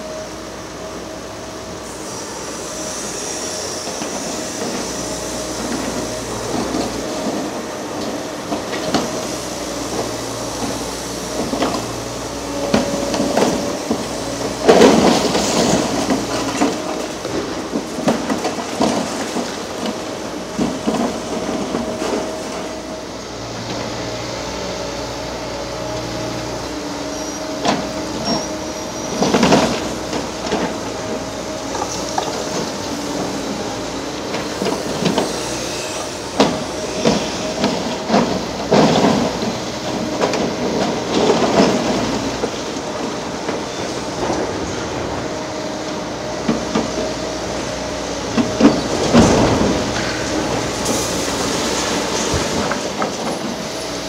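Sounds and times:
excavator engine and hydraulic whine: 0:00.0 - 0:54.0
debris crashing and clanking: 0:48.4 - 0:53.4.

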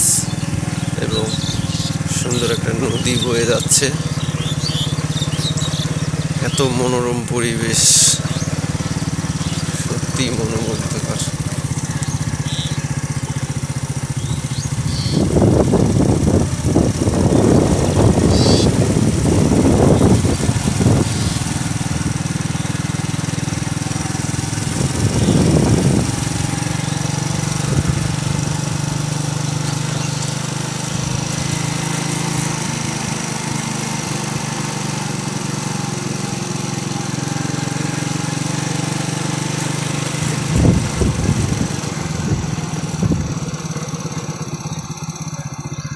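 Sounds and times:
motorcycle engine running: 0:00.0 - 0:45.9
wind hiss: 0:14.8 - 0:23.1.

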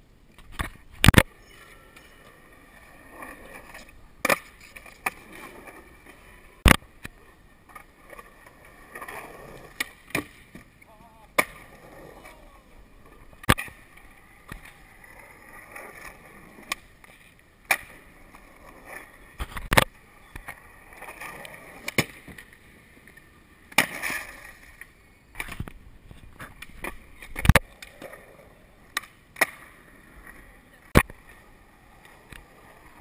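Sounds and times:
skateboard wheels rolling on concrete: 0:00.0 - 0:33.0
skateboards clacking on ground: 0:00.3 - 0:33.0.

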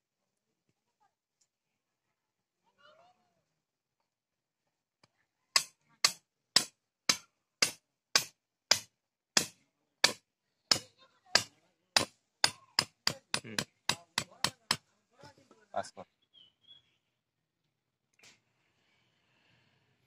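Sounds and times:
hammer striking stake: 0:05.6 - 0:14.8.

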